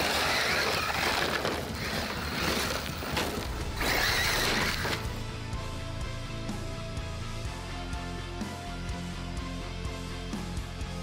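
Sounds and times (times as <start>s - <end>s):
rc truck electric drive: 0.0s - 5.2s
tires spraying dirt and gravel: 0.0s - 5.2s
background music: 0.0s - 11.0s.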